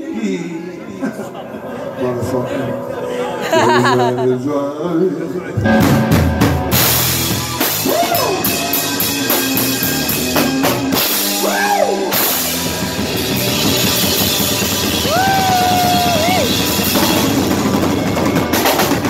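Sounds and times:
electric guitar sliding notes: 1.2s - 4.4s
drum kit with cymbals: 5.6s - 19.0s
electric bass: 5.6s - 19.0s.

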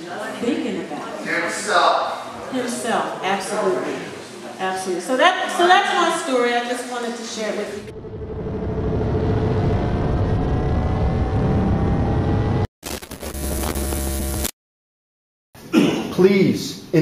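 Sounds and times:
deep rumbling burst: 7.8s - 12.7s
whoosh with rising tone: 7.8s - 12.7s.

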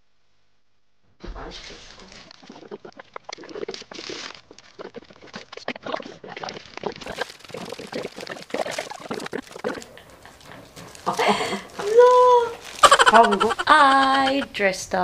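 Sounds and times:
foil balloons crinkling: 1.6s - 14.4s
short crackles and clicks: 1.7s - 11.1s.

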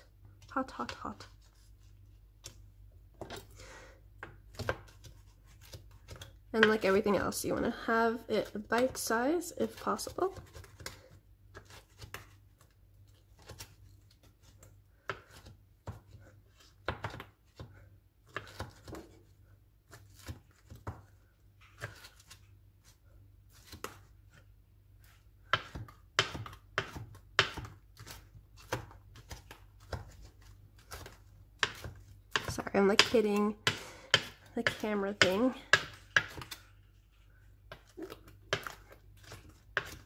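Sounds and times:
knife chopping on cutting board: 4.2s - 7.1s, 15.0s - 19.2s, 25.4s - 36.6s, 37.7s - 40.0s.

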